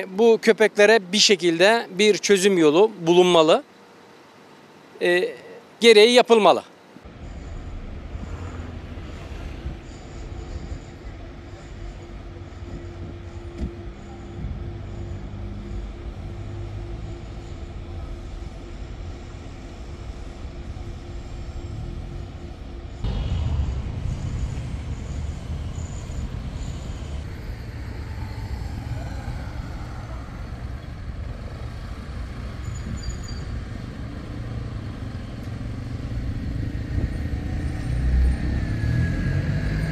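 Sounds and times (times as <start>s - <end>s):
passing cars rumble: 7.0s - 39.9s.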